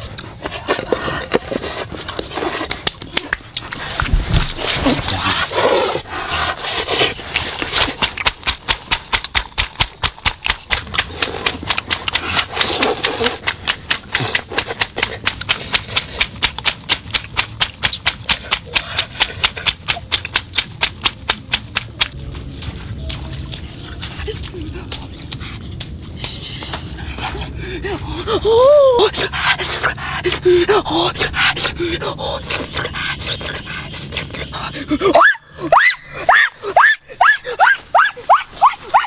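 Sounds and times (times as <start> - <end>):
rapid even clicking: 7.2 - 27.5.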